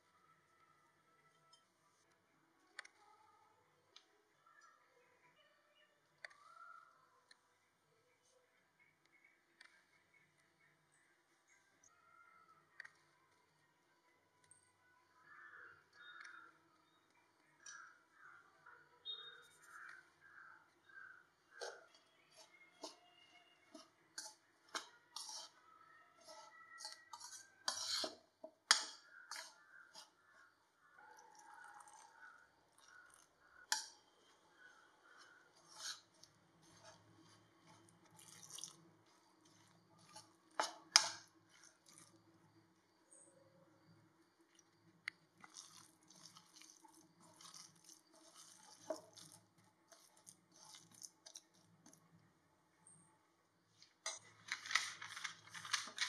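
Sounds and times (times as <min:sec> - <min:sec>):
spoon scraping ceramic bowl: 0:21.6 - 0:25.6, 0:26.2 - 0:30.2, 0:35.1 - 0:42.1, 0:45.4 - 0:51.5.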